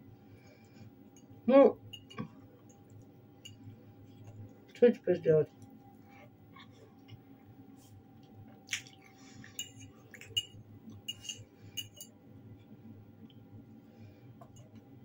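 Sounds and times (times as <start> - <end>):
metal fork clinking on ceramic bowl: 1.9 - 2.3, 9.5 - 12.1.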